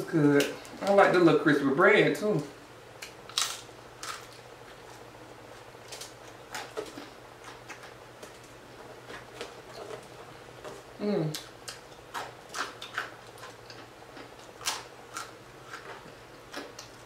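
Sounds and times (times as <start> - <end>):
chewing crispy crust: 3.0 - 17.0.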